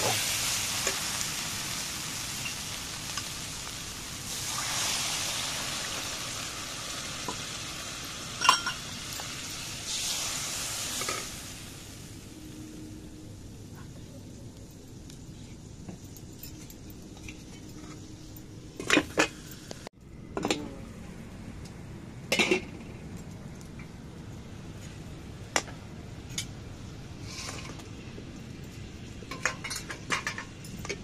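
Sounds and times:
metal utensils clinking: 8.4 - 9.6, 28.7 - 31.0.

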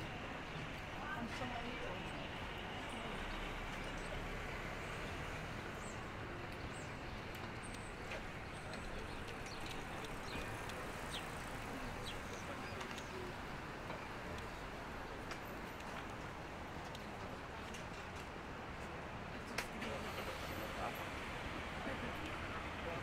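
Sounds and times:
crowd noise: 0.0 - 16.0
traffic noise: 0.0 - 23.0.

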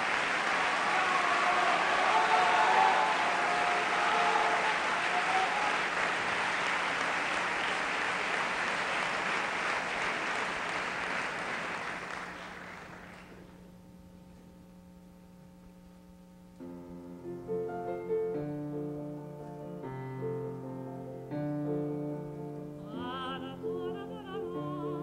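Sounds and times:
audience applauding: 0.0 - 13.5
low steady hum: 10.6 - 25.0
grand piano playing: 16.6 - 25.0.

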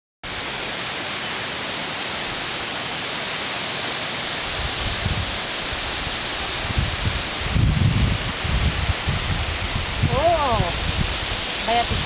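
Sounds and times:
waterfall roaring: 0.3 - 12.0.

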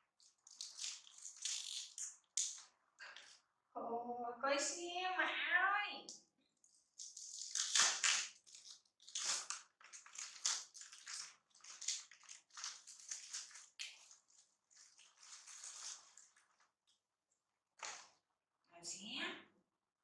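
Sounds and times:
plastic packaging crinkling: 0.2 - 2.6, 7.0 - 16.7.

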